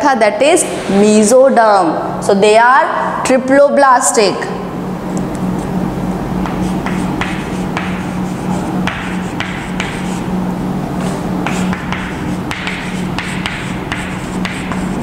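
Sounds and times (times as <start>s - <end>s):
steady low hum: 0.0s - 15.0s
chalk tapping on chalkboard: 6.4s - 10.3s, 11.0s - 15.0s.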